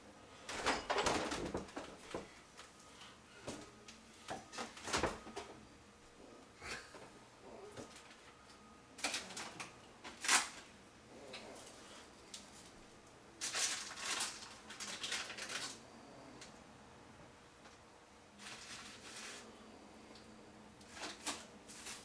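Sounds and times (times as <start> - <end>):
containers and bottles rattling: 0.5 - 2.3, 13.4 - 15.8.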